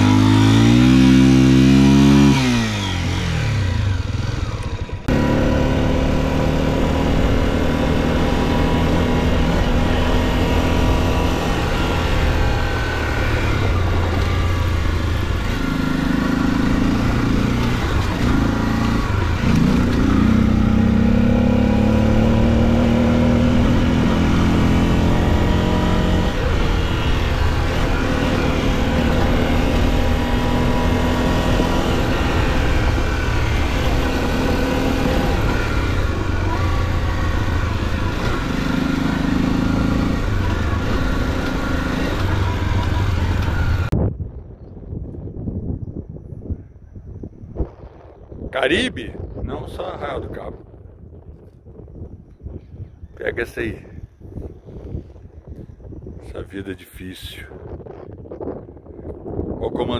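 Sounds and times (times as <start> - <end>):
motorcycle engine revving: 0.0 - 44.0.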